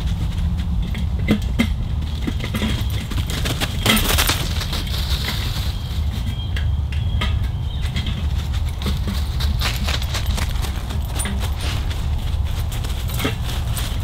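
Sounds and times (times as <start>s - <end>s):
low rumble: 0.0s - 3.3s
sheet metal pipes clinking: 6.3s - 14.0s.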